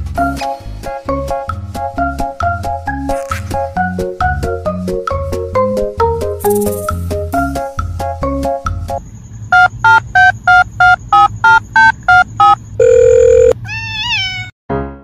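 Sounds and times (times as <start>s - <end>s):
short electronic beeps: 9.6s - 13.6s.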